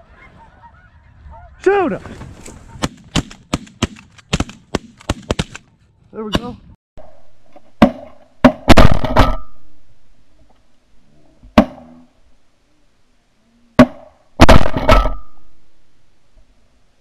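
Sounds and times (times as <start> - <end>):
shotguns firing: 2.8 - 5.6, 7.8 - 9.6, 13.8 - 15.4.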